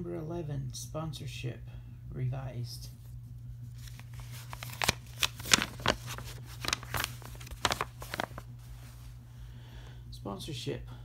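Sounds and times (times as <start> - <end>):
low steady hum: 0.0 - 11.0
paper crackling and rustling: 3.6 - 9.1.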